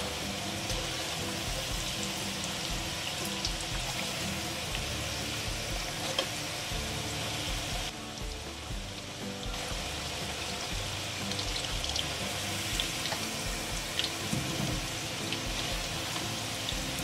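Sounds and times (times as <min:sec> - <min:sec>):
background music: 0:00.0 - 0:17.0
potatoes sizzling in oil: 0:00.0 - 0:17.0.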